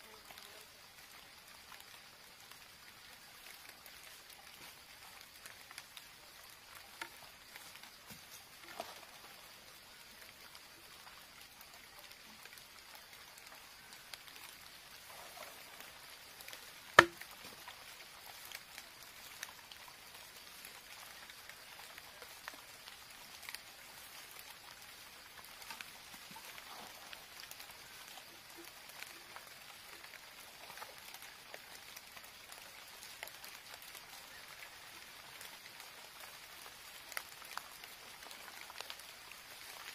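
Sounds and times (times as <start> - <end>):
bamboo pieces clicking and crackling: 16.4 - 17.6.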